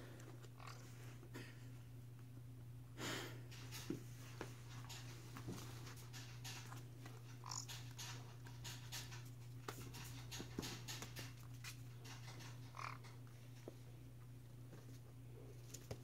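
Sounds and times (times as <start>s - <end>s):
puppy scratching and shuffling: 3.5s - 13.8s.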